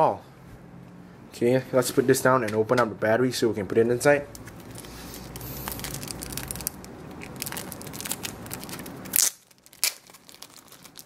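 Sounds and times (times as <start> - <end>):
plastic wrapper crinkling: 4.4 - 11.0.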